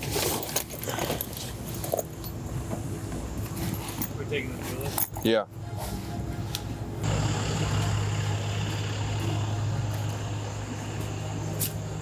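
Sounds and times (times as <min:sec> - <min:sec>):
truck engine idling: 0:06.8 - 0:12.0.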